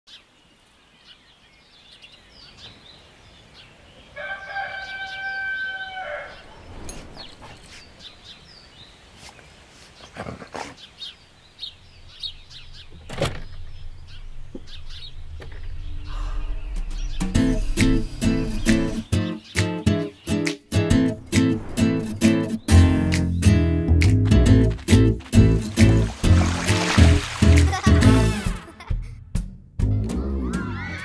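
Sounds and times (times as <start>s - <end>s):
birds chirping: 0.1s - 28.5s
rooster crowing: 4.2s - 6.5s
low hum: 13.6s - 19.0s
music: 17.1s - 31.0s.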